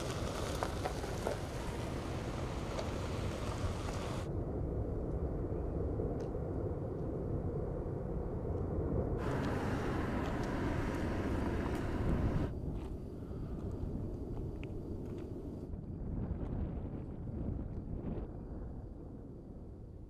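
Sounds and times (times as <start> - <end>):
high hiss: 0.0 - 4.3, 9.2 - 12.5
volcano deep rumble: 0.0 - 20.0.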